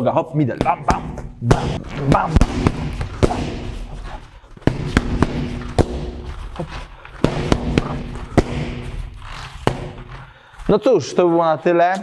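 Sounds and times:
kicks and punches on pads: 0.6 - 10.1.

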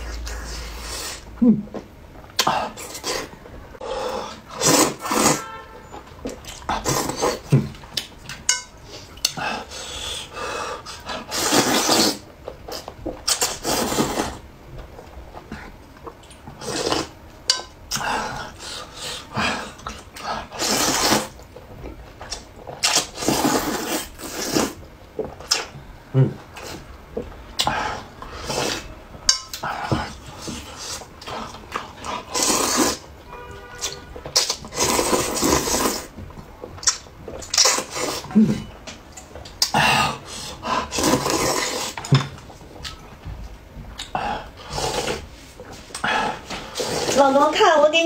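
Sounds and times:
person slurping noodles: 0.0 - 1.3, 2.4 - 5.6, 6.7 - 7.6, 9.0 - 14.4, 16.6 - 17.2, 17.9 - 21.4, 22.8 - 24.8, 27.6 - 29.0, 29.6 - 33.1, 34.4 - 36.1, 37.5 - 38.7, 39.6 - 42.1, 44.1 - 45.4, 46.0 - 47.2
person chewing: 6.2 - 33.1, 33.7 - 47.2.

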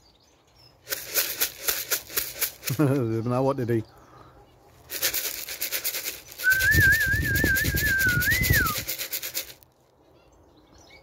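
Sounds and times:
tin of feed rattling: 0.9 - 3.0, 4.9 - 9.6
warbling human whistle: 6.4 - 8.9.

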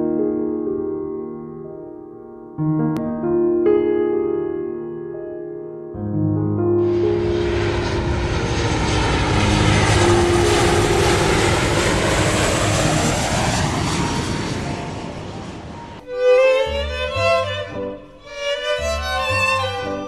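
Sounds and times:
propeller aircraft engine droning: 6.8 - 20.0.

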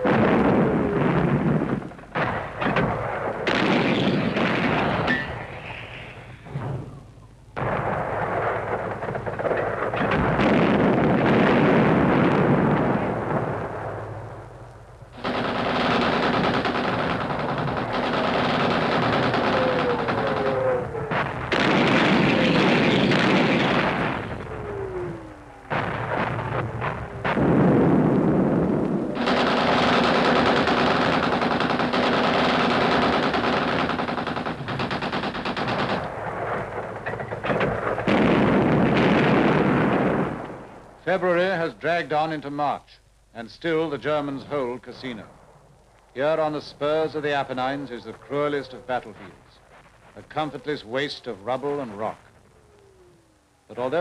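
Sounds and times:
machine-gun and rifle fire: 0.0 - 5.2, 7.6 - 14.0, 15.2 - 24.5, 25.7 - 40.4.

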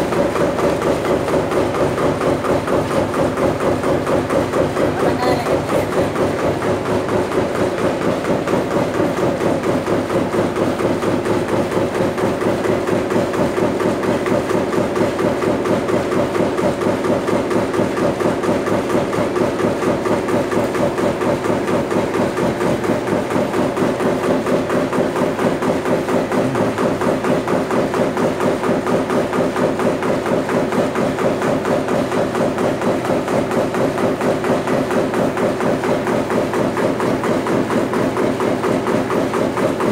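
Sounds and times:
press pounding rhythmically: 0.0 - 39.9.

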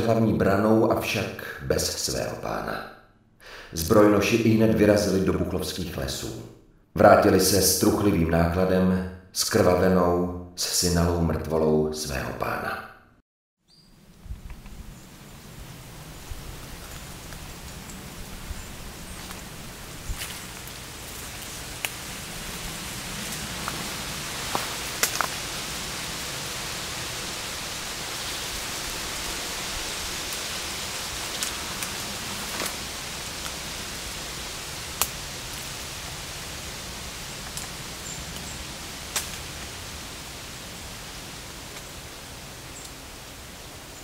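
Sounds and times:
rushing hiss of forest ambience: 13.7 - 44.0.

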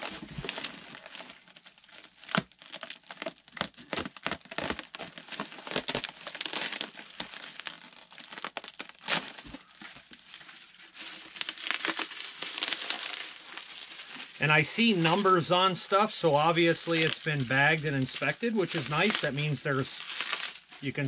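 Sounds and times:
bubble wrap crinkling: 0.0 - 21.0
sharp plastic cracks: 2.2 - 9.6.

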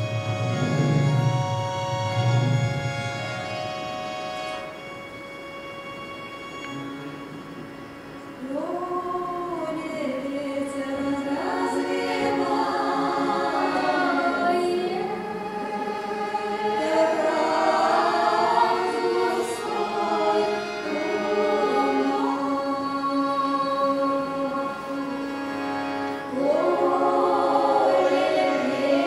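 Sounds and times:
women singing in close harmony: 8.4 - 25.7, 26.3 - 29.0.

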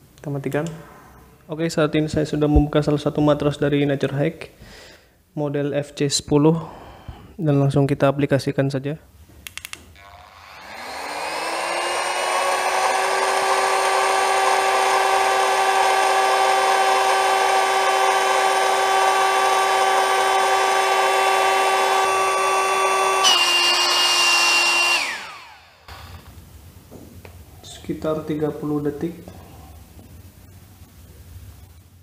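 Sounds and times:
air pump motor whining: 10.0 - 26.3.

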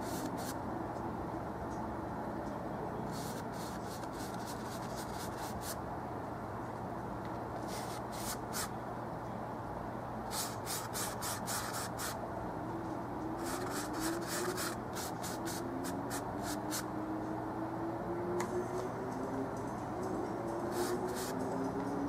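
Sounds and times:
paintbrush scrubbing on canvas: 7.6 - 8.7.

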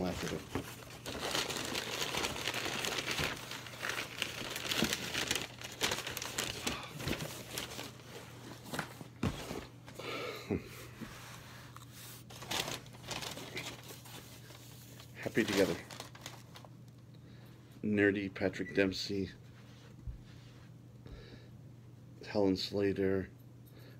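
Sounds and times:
packing material rustling: 0.0 - 9.8, 12.2 - 16.7.

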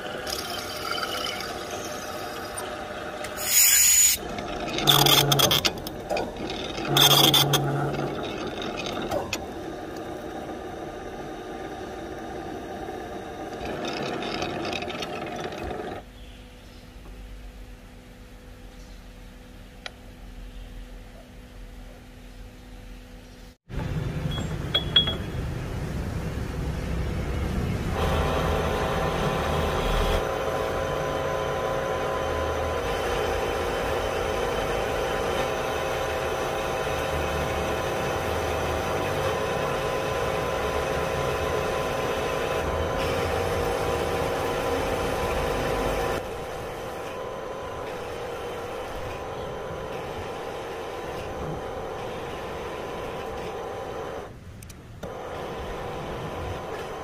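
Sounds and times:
lathe drive whining: 0.0 - 16.1, 27.8 - 54.4, 55.0 - 57.0.

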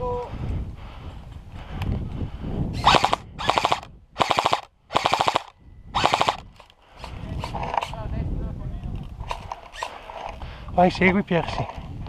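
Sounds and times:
airsoft gun full-auto bursts: 2.8 - 6.4.

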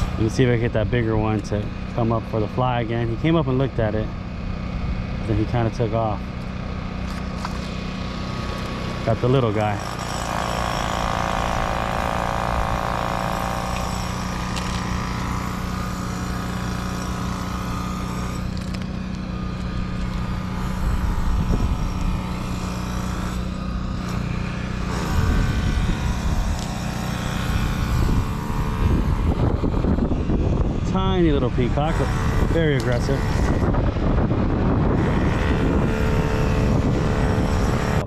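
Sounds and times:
engine running: 0.0 - 38.0
wind rumbling on microphone: 19.2 - 38.0.

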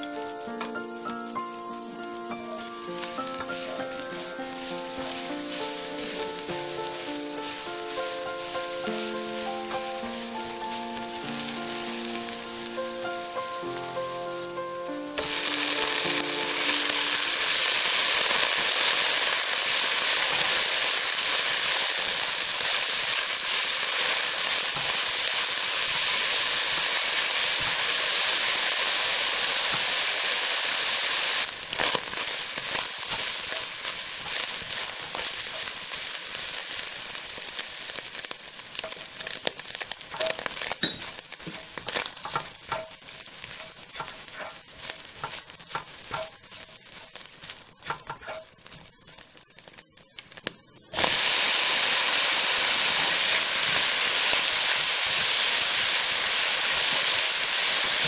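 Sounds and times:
food sizzling in hot oil: 0.0 - 58.0.

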